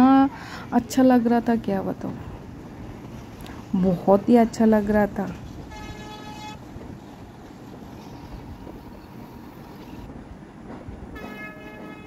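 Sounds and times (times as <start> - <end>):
train wheels rumbling: 0.0 - 12.0
train horn: 5.7 - 6.7, 11.1 - 12.0.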